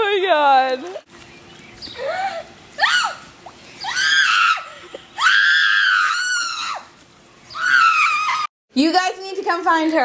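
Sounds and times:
girl screaming: 0:02.8 - 0:03.2, 0:03.8 - 0:06.9, 0:07.6 - 0:08.5.

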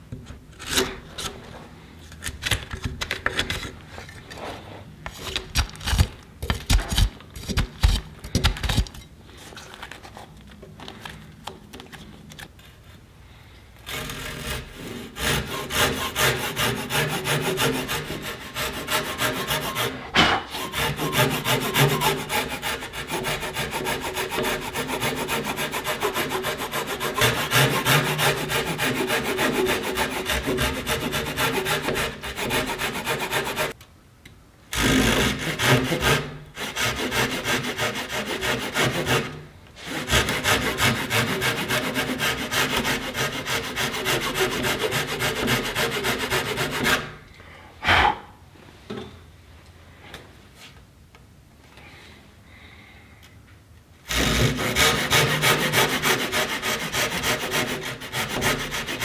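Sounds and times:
hand saw cutting timber: 0:13.8 - 0:33.8, 0:34.7 - 0:47.2, 0:54.1 - 0:59.0.

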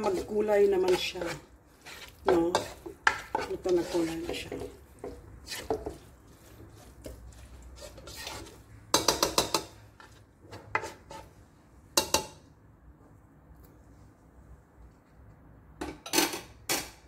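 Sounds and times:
utensils scraping a wok: 0:00.0 - 0:11.4.

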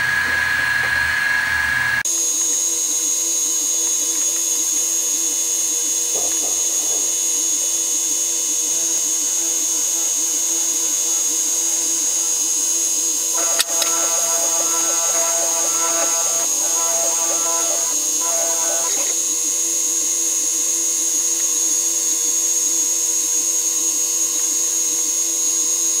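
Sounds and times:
mill spindle high whine: 0:00.0 - 0:20.4
wavering metal cutting tone: 0:13.2 - 0:19.2
click: 0:13.4 - 0:14.8.

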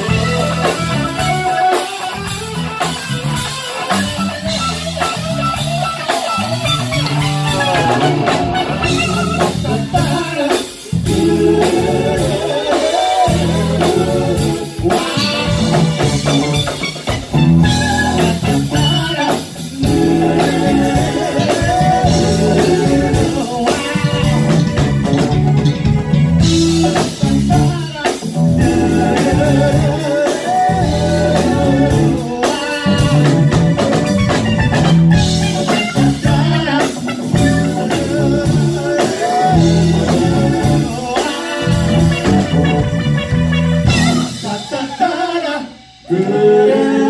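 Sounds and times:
electric bass line: 0:00.0 - 0:44.7
live band playing: 0:00.0 - 0:47.0.

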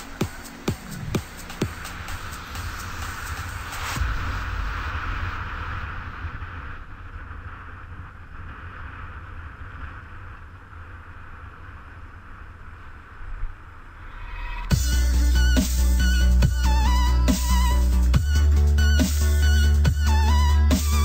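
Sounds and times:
wind buffeting microphone: 0:00.0 - 0:14.8
bright hiss: 0:00.0 - 0:21.0.

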